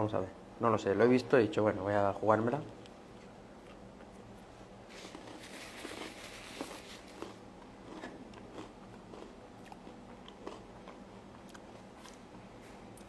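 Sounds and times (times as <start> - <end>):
person chewing crunchy food: 3.0 - 13.0.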